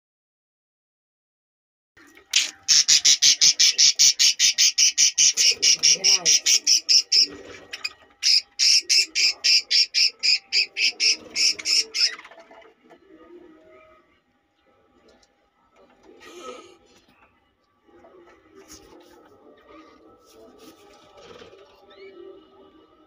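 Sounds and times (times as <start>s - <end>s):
budgerigar squawking: 2.4s - 12.3s.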